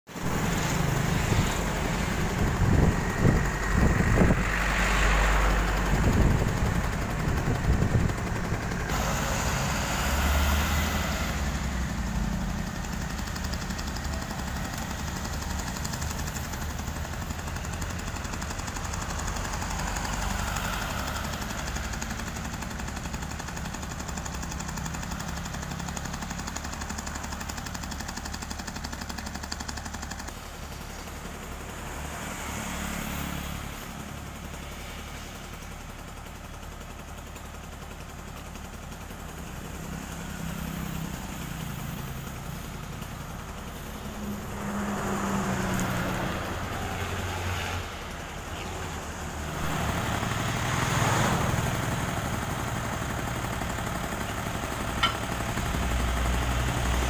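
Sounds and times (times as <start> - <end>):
excavator diesel engine idling: 0.1 - 57.0
metal knocks and clanks: 54.8 - 55.8.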